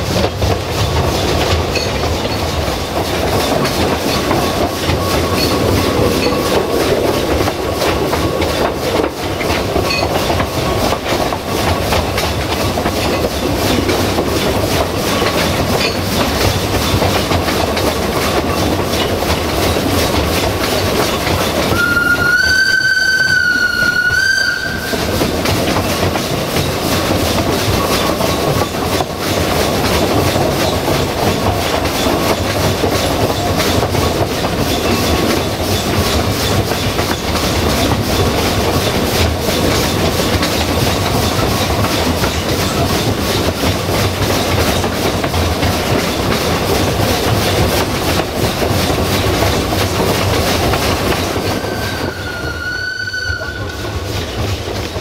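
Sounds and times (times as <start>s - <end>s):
train wheels clattering on rails: 0.0s - 55.0s
steam whistle: 21.7s - 25.2s, 51.5s - 54.0s.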